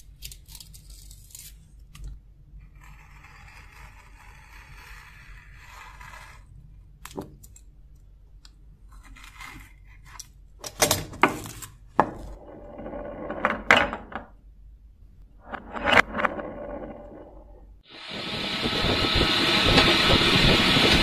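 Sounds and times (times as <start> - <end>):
craft knife scraping tape: 0.0 - 2.0, 2.6 - 6.5
tape crackling as peeled: 0.0 - 2.2.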